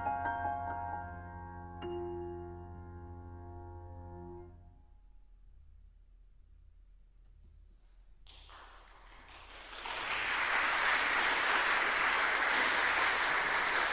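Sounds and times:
audience applause: 8.3 - 13.9.

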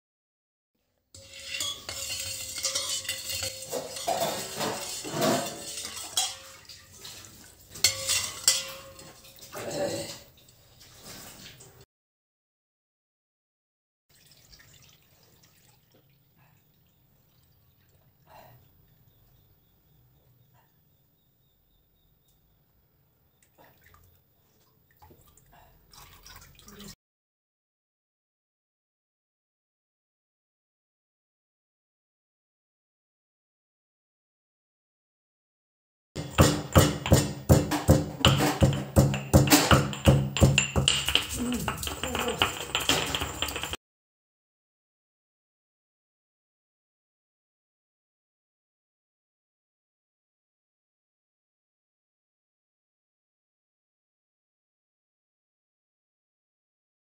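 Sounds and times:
light metal clinks: 1.2 - 7.1, 7.8 - 9.6
spoon clinking against bowl: 1.2 - 9.7, 36.2 - 43.8
spoon stirring milk in metal bowl: 1.2 - 10.4, 36.2 - 43.8
small splashes: 1.2 - 11.7, 14.1 - 16.2, 23.4 - 27.0
milk trickling and dripping: 1.2 - 11.8, 14.1 - 19.8, 23.3 - 27.0.

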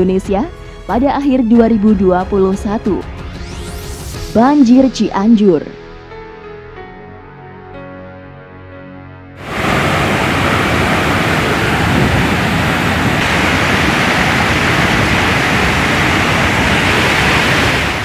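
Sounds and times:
soft background music: 0.0 - 9.4
flood torrent rushing: 9.4 - 18.0.

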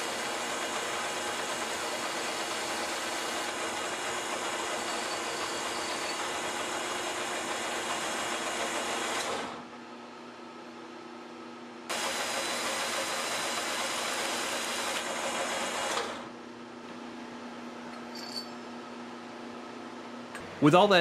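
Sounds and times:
lathe running hum: 0.0 - 9.6, 11.9 - 16.3
file rasping on spinning metal: 1.4 - 6.4.

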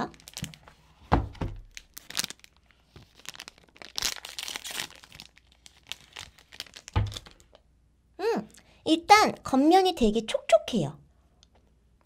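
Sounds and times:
wrapper tearing rustle: 0.0 - 1.0, 1.6 - 7.6
plastic wrapper crinkling: 0.0 - 7.6.

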